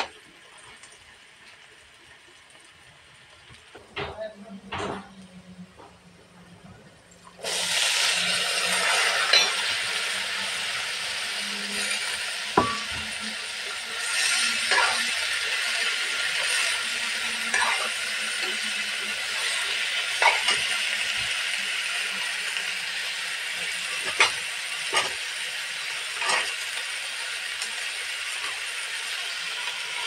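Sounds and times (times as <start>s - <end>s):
vegetables sizzling in hot oil: 0.0s - 4.1s, 7.3s - 30.0s
metal spatula scraping pan: 7.5s - 10.6s, 11.3s - 21.4s, 23.8s - 25.3s, 26.0s - 26.8s.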